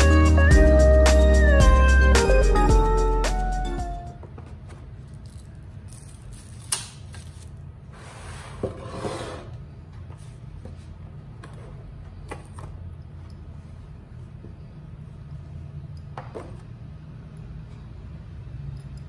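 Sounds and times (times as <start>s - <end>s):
cardboard box sliding on table: 7.9s - 9.5s.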